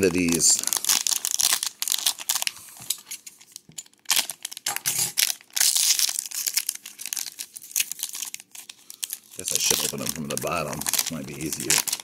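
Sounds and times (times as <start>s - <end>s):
foil wrapper crinkling: 0.0s - 12.0s.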